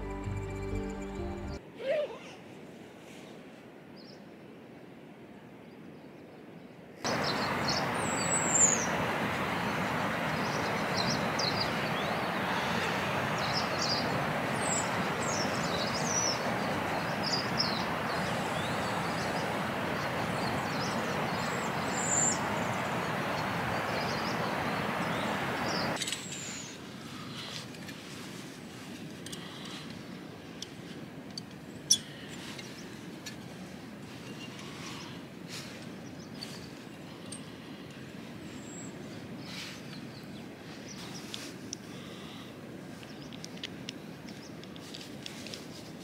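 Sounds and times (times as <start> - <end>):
rushing river and waterfall: 7.0 - 27.3
birds chirping: 7.1 - 26.8.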